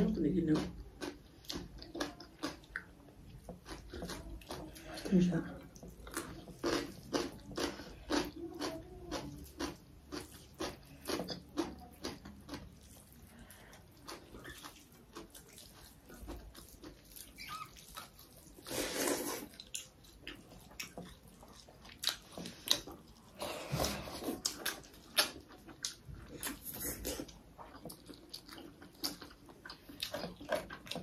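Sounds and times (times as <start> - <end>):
chewing and mouth smacking: 0.6 - 31.0.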